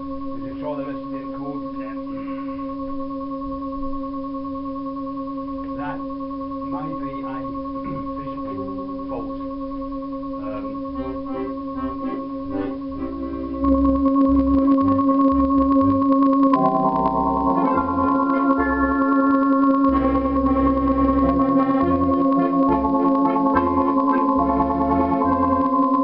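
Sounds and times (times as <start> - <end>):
accordion holding steady note: 10.6 - 26.0
short accordion notes: 16.6 - 25.8.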